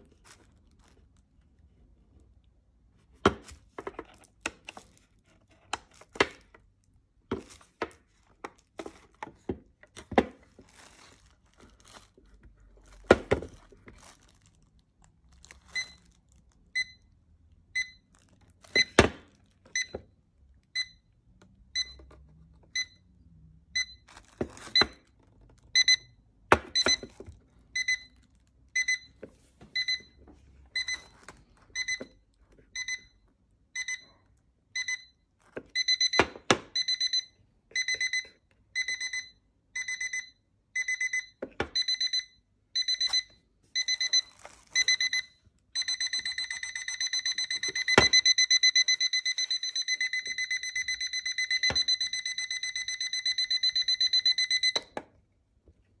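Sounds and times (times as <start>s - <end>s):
alarm clock beeping: 16.8s - 17.0s, 19.7s - 20.0s, 20.8s - 21.0s, 21.8s - 22.0s, 22.7s - 23.0s, 23.8s - 24.0s, 25.7s - 27.1s, 27.8s - 28.2s, 28.8s - 29.2s, 29.8s - 31.1s, 31.7s - 32.2s, 32.8s - 33.2s, 33.8s - 55.0s.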